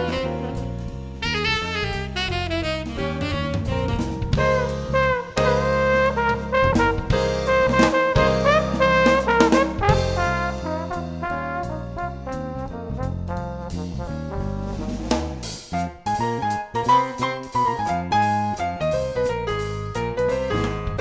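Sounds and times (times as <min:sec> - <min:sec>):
bass line: 0:00.0 - 0:21.0
jazzy brass music: 0:00.0 - 0:21.0
drum beat: 0:02.8 - 0:12.0.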